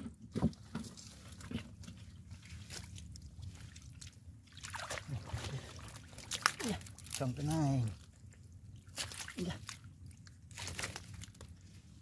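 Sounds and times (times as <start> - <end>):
hands splashing in muddy water: 2.4 - 7.3, 8.9 - 9.8.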